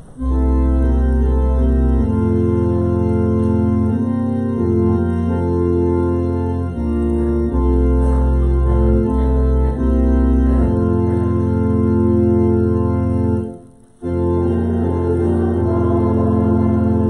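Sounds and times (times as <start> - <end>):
church organ chords: 0.0 - 17.0.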